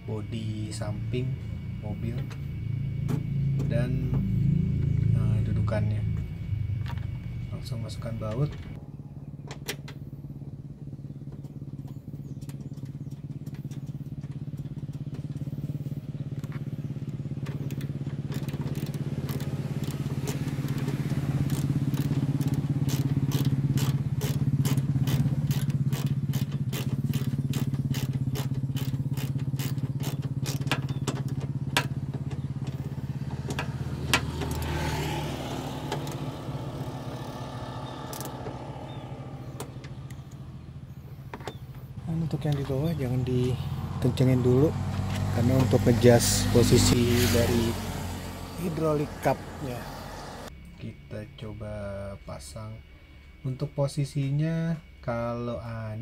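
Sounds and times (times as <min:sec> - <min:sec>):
vehicle engine hum: 0:00.0 - 0:56.0
ratchet wrench clicking: 0:17.7 - 0:32.0, 0:38.1 - 0:38.4.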